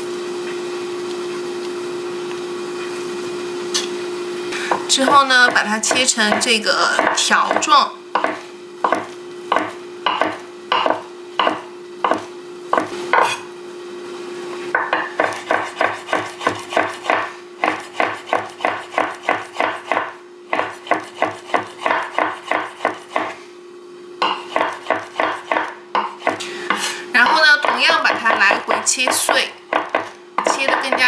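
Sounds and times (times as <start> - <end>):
steady low hum: 1.0 - 31.0
knife chopping on wooden board: 4.7 - 13.4, 14.8 - 23.4, 24.2 - 31.0.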